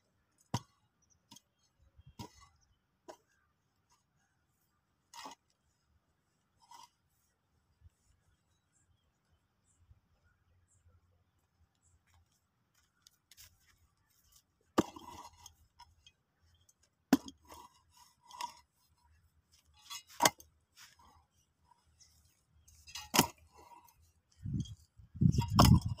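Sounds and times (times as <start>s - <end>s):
rattle of loosened earth: 0.0s - 9.9s, 11.4s - 26.0s
mattock striking hard soil: 14.7s - 15.6s, 22.7s - 26.0s.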